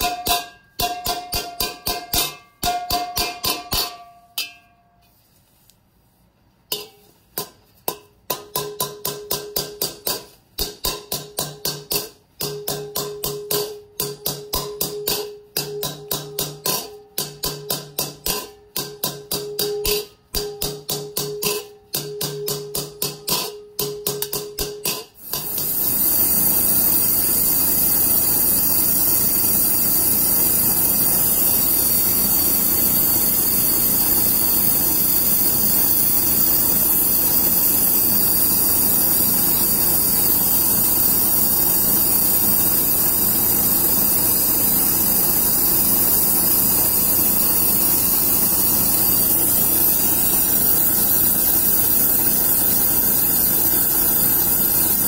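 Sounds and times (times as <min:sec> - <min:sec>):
gas torch flame hissing: 0:25.2 - 0:55.0.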